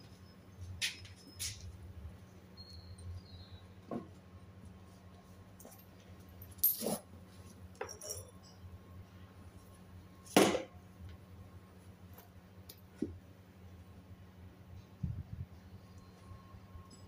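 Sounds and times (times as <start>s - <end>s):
metal tools clinking: 5.6s - 8.7s.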